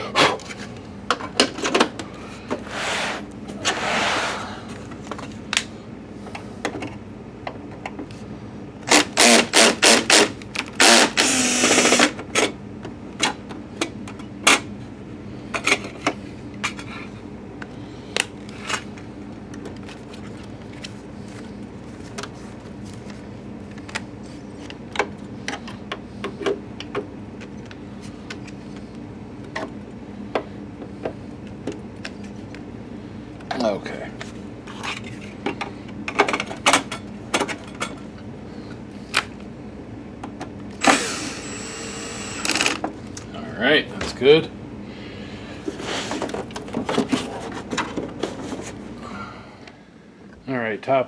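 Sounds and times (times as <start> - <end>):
cordless drill driving screws: 8.9 - 12.2, 40.8 - 42.8.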